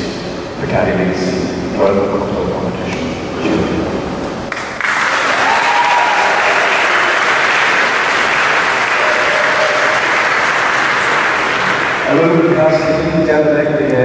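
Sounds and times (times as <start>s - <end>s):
large audience applauding: 4.5s - 12.6s.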